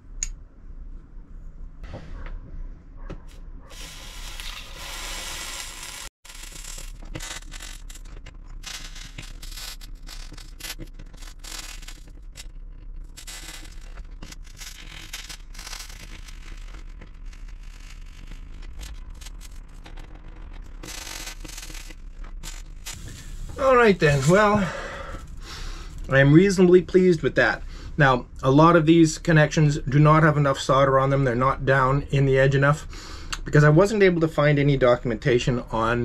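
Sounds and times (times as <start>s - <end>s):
hiss: 3.7s - 6.1s
solder crackling at iron tip: 3.7s - 26.6s.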